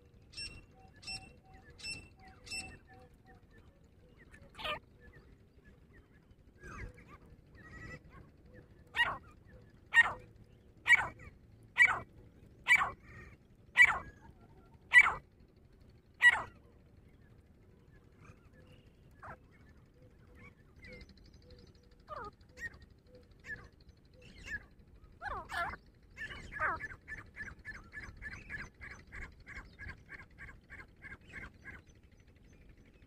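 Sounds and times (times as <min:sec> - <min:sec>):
bird calling sharp notes: 0:09.9 - 0:10.2, 0:10.9 - 0:11.2, 0:11.8 - 0:12.0, 0:12.7 - 0:13.0, 0:13.8 - 0:14.0, 0:14.9 - 0:15.2, 0:16.2 - 0:16.5.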